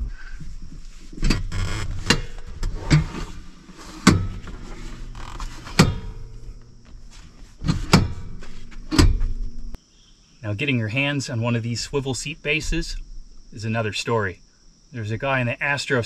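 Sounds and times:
seat rattling: 0.0s - 9.8s
metal clunks of swivel seat: 1.2s - 3.4s, 4.0s - 7.0s, 7.6s - 9.7s.

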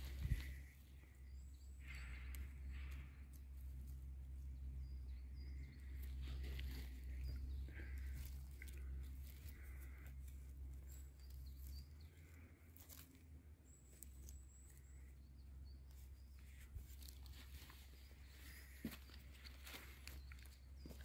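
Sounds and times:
low rumble on microphone: 0.0s - 10.5s.

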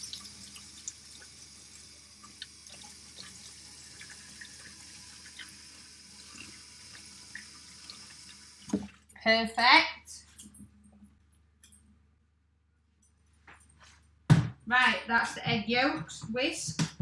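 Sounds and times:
kitchen tap running: 0.0s - 9.0s.

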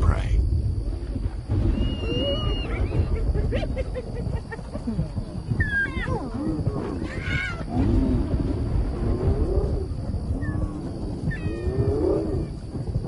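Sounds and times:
hyenas yelping and calling: 1.7s - 3.2s, 5.4s - 8.0s, 9.3s - 12.5s
lion growling and snarling: 4.8s - 13.0s.

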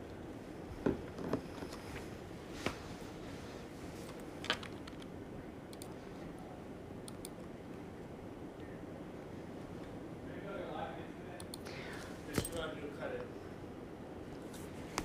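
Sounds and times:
faint room hiss: 0.0s - 15.0s
sharp clicks: 5.7s - 6.0s.

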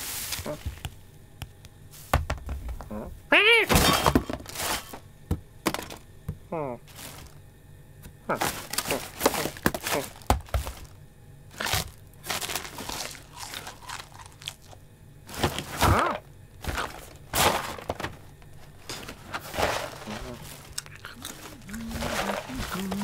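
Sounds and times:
crinkling of packets and paper: 0.0s - 0.9s, 6.9s - 7.4s, 8.3s - 16.0s, 16.6s - 23.0s.

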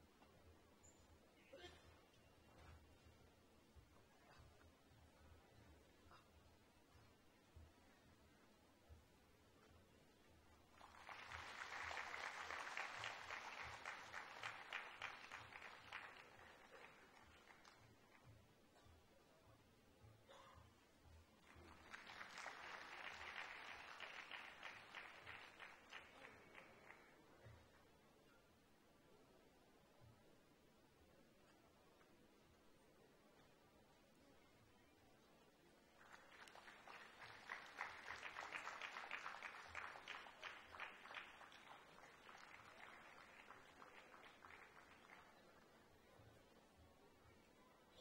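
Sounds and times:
audience applause: 10.7s - 17.8s, 21.4s - 27.0s, 36.0s - 45.7s.

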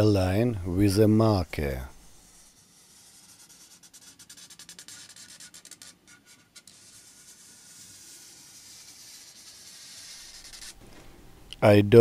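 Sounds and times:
marker scratching on board: 2.1s - 10.8s.

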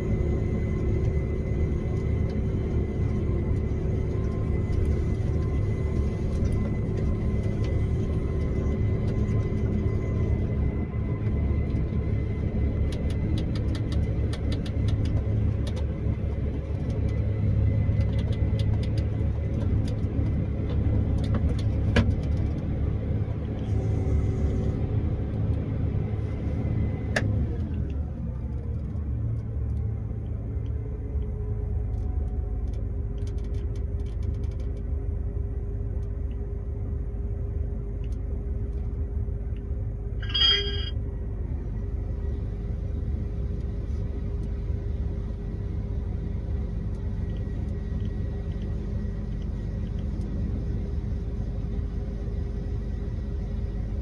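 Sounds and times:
combine harvester engine running: 0.0s - 54.0s
click: 38.0s - 38.2s
short high-pitched chirp: 40.2s - 40.9s.

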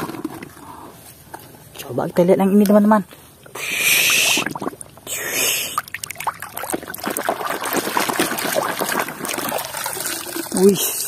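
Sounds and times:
water splashing and sloshing: 5.7s - 11.0s.

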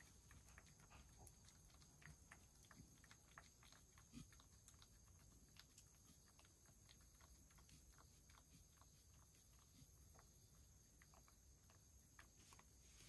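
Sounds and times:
cat lapping water: 0.0s - 9.0s.

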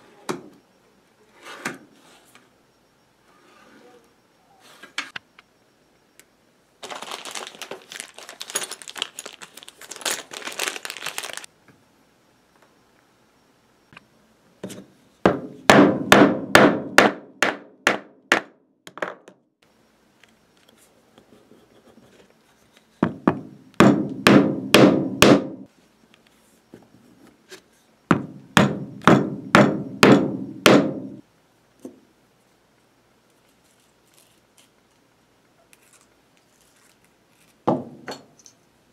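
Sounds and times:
mallet knocking leather chisel: 15.3s - 18.5s, 23.0s - 25.5s, 28.1s - 31.1s.

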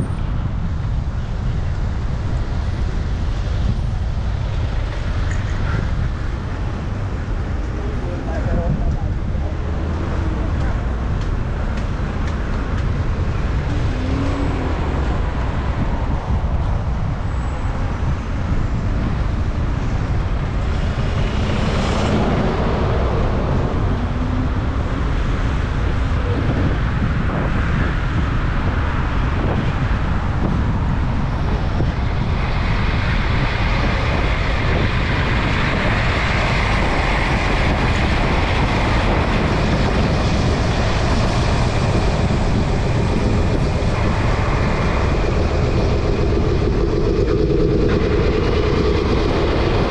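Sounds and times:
city traffic noise: 0.0s - 49.9s
vehicle passing close: 12.8s - 27.3s.

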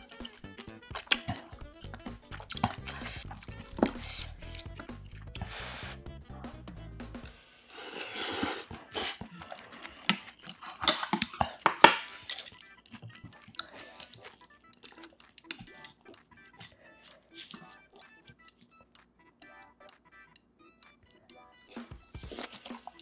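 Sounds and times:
chewing: 0.0s - 6.2s, 7.2s - 23.0s
chopsticks clicking against dishes: 9.1s - 18.7s.

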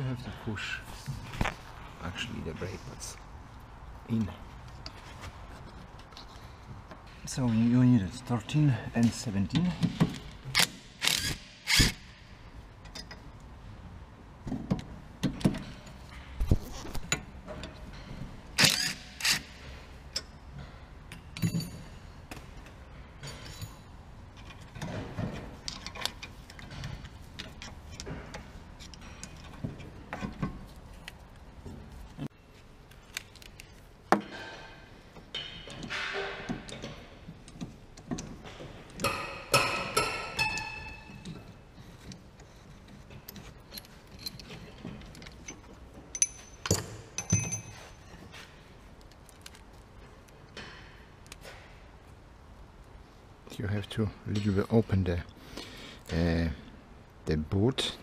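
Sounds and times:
metal tool clicks and clinks: 43.3s - 47.8s.

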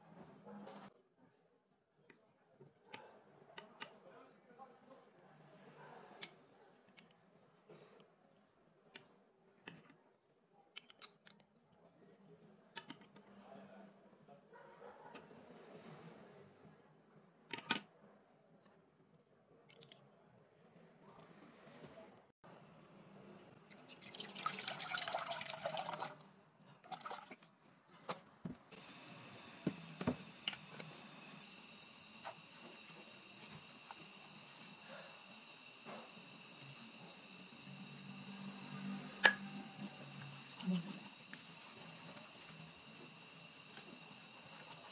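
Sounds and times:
milk pouring into metal saucepan: 23.6s - 27.5s, 32.4s - 44.9s.

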